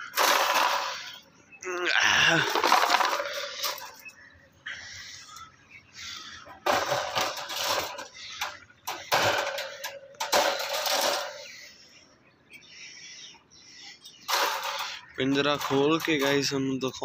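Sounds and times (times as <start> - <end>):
wire dog crate rattling: 0.0 - 1.2, 6.6 - 11.4, 14.3 - 16.6.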